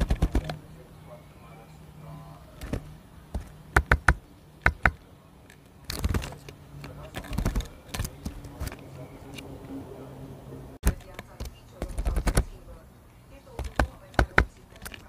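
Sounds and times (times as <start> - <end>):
faint low hum: 0.0 - 15.0
bird beak tapping feeder: 2.6 - 5.0, 13.5 - 15.0.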